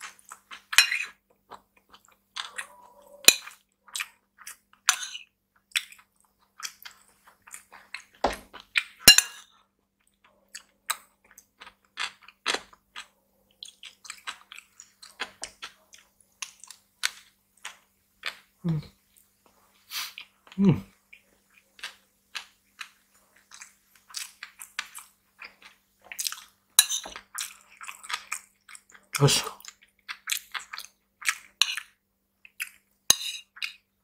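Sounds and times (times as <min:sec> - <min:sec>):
close chewing and mouth sounds: 0:00.0 - 0:34.0
metal spoon clinking on bowl: 0:09.1 - 0:09.5, 0:33.1 - 0:33.5.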